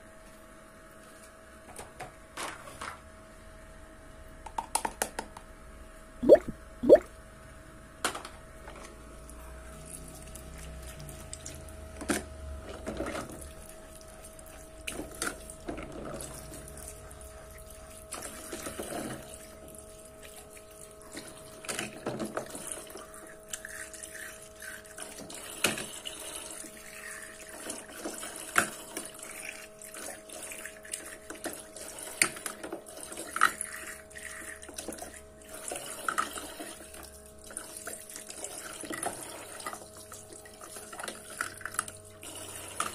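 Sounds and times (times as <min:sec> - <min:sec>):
small pump humming: 0:00.0 - 0:42.9
water trickling from tap: 0:06.2 - 0:07.0.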